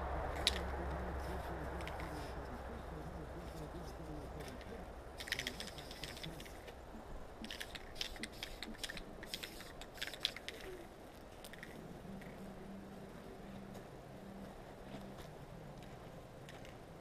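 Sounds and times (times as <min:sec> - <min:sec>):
spray can rattling: 0:05.2 - 0:06.7, 0:07.4 - 0:10.8, 0:11.4 - 0:12.3.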